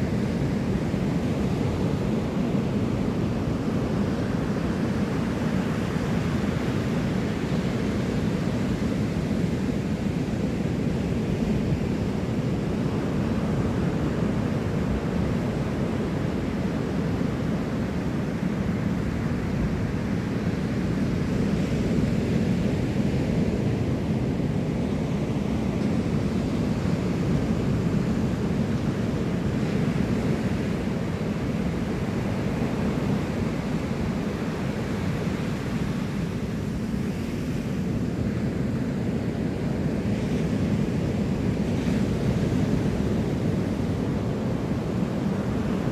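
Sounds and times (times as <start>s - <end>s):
wind rumbling on microphone: 0.0s - 45.9s
ocean surf breaking: 12.0s - 45.9s.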